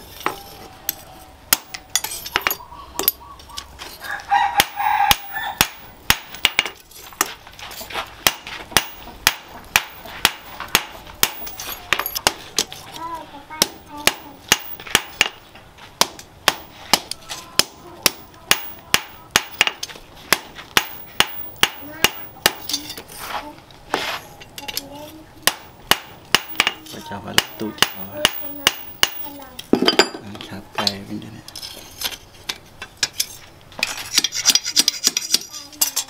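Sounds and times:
hammer striking steel on anvil: 8.2 - 12.4, 13.6 - 15.4, 16.0 - 23.0, 25.4 - 30.2.

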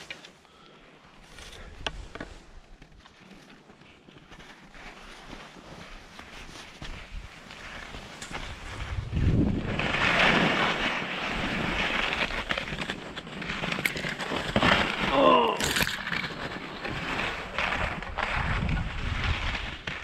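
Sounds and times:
skis scraping over crusty snow: 0.0 - 20.0
wind noise on microphone: 6.8 - 13.0, 16.8 - 20.0.

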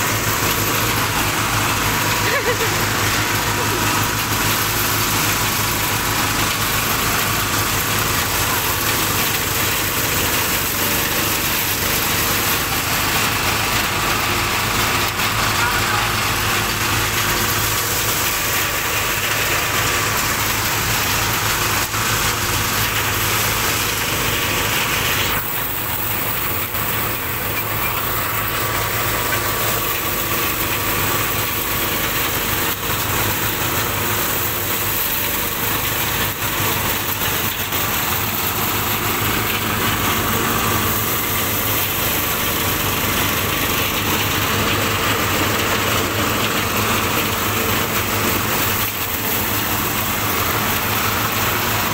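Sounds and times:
engine hum: 0.0 - 51.9
rice thresher rushing noise: 0.0 - 51.9.

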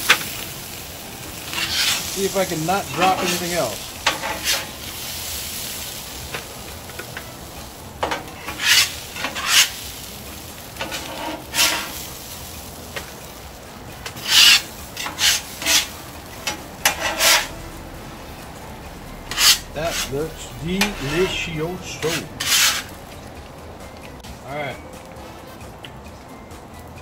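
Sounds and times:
faint steady sizzle: 0.0 - 27.0
spatula scraping metal griddle: 1.3 - 13.1, 14.0 - 17.7, 19.2 - 23.1.

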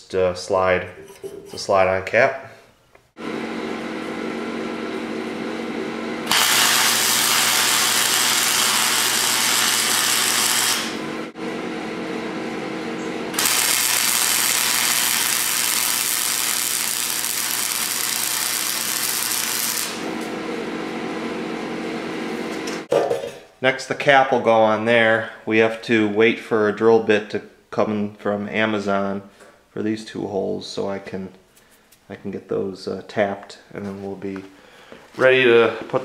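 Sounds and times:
steady hum: 3.0 - 22.9
welder arc crackling: 6.2 - 11.4, 13.3 - 20.3.

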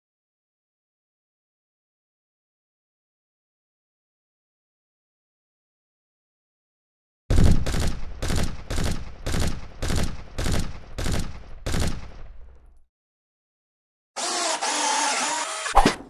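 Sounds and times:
rifle shots echoing: 7.3 - 12.8.

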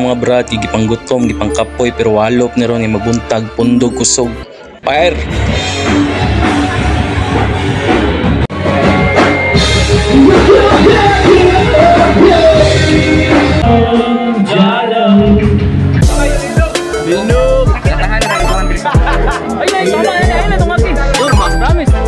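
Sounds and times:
live rock band: 5.2 - 22.0
person singing: 10.0 - 22.0.

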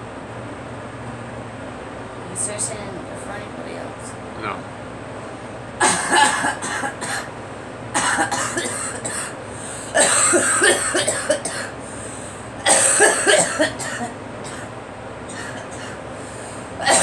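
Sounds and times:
woman coughing: 5.8 - 7.3, 8.0 - 11.8, 12.6 - 14.7, 15.3 - 16.0, 16.8 - 17.0.

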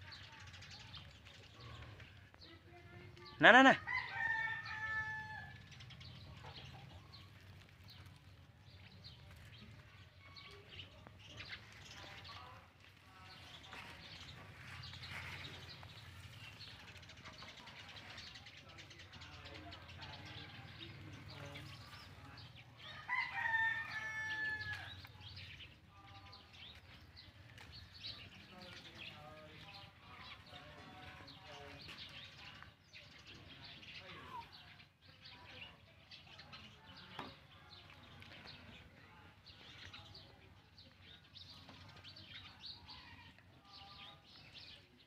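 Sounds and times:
rooster crowing: 3.8 - 5.6, 22.9 - 24.9.

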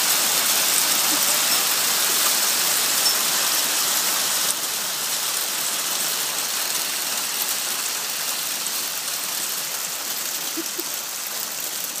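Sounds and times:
hail on pavement and cars: 0.0 - 12.0.

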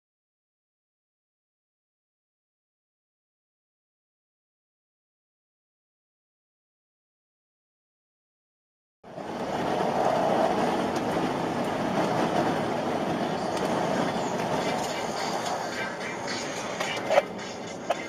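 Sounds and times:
vehicle road noise at highway speed: 9.1 - 18.0.

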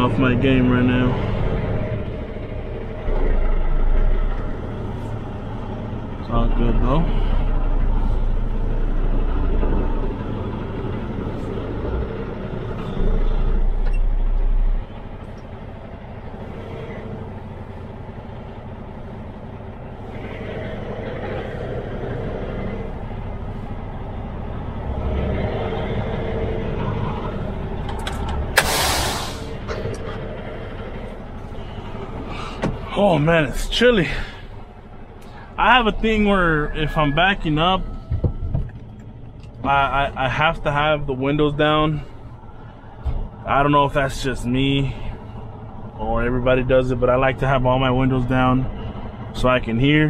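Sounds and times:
diesel engine idling: 0.0 - 50.0
air brake hiss: 28.6 - 29.6.

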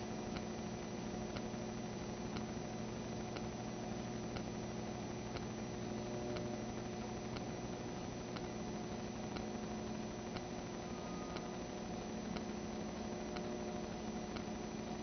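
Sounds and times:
electrical hum: 0.0 - 15.0
faint tick: 1.3 - 1.6, 2.3 - 2.6, 4.3 - 4.5, 5.3 - 5.5, 6.3 - 6.6, 7.3 - 7.5, 8.3 - 8.5, 9.3 - 9.5, 10.3 - 10.5, 11.3 - 11.6, 12.3 - 13.7, 14.3 - 14.5.

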